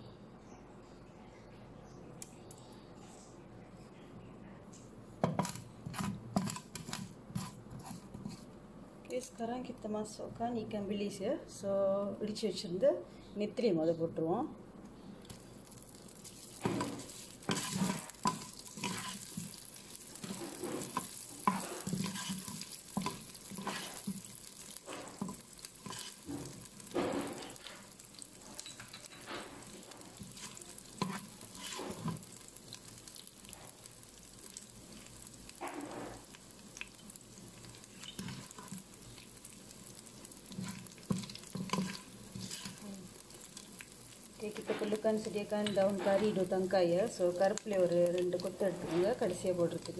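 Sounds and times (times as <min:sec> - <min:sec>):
wooden spatula scraping pot: 0:05.2 - 0:08.5, 0:16.3 - 0:32.3, 0:37.6 - 0:39.0, 0:40.4 - 0:42.9
oil sizzling: 0:05.2 - 0:09.4, 0:14.9 - 0:49.9.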